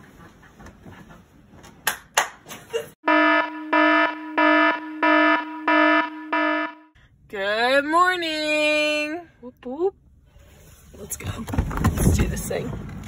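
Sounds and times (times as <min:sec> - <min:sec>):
alarm beeping: 0:03.0 - 0:07.0.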